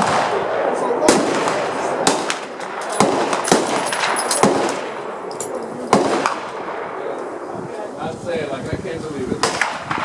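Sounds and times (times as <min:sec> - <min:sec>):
distant rifle shots: 0:00.0 - 0:07.1, 0:09.4 - 0:10.0
rifle shots: 0:00.0 - 0:07.2, 0:09.4 - 0:10.0.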